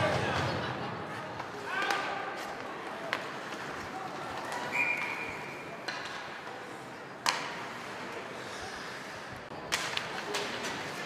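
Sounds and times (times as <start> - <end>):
hockey stick clacks: 1.4 - 5.2, 5.8 - 8.2, 9.6 - 11.0.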